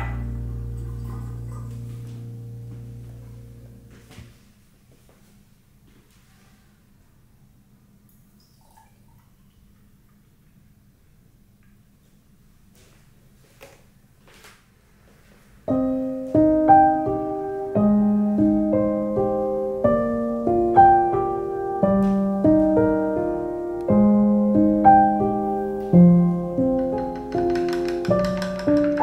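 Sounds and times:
slow solo piano: 0:00.0 - 0:04.5, 0:15.7 - 0:29.0.

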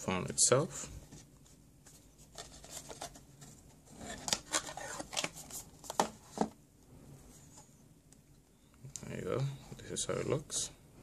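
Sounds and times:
cardboard and plastic rustling: 0:01.0 - 0:06.6.

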